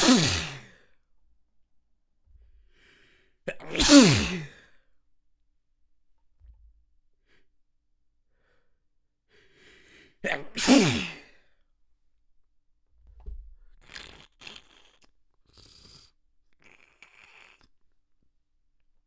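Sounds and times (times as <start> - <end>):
person sneezing: 0.0 - 0.9, 3.5 - 4.7, 10.2 - 11.4.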